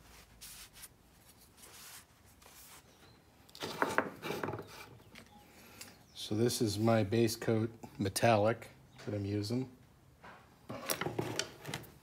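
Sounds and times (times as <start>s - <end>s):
cloth rag rubbing: 0.0s - 3.0s.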